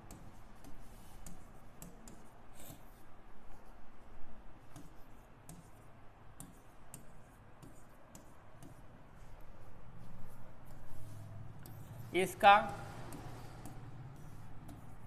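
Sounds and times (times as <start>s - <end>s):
pen scratching on writing board: 0.0s - 3.7s, 4.6s - 15.0s.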